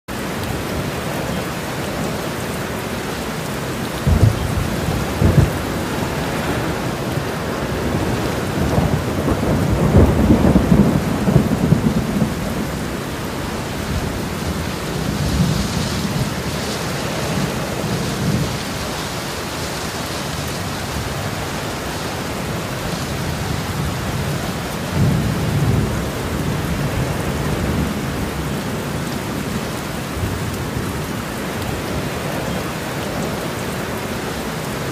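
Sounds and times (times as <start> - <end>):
steady rain: 0.1 - 34.9
thunder rolling: 4.0 - 18.7.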